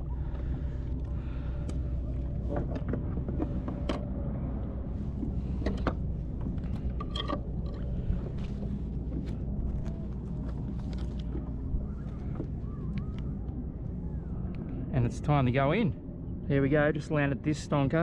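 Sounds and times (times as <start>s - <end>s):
steady low rumble: 0.0s - 18.0s.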